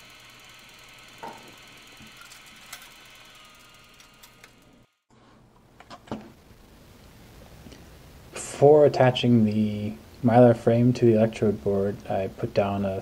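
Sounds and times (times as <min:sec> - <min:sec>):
small electric motor whining: 0:00.0 - 0:05.1.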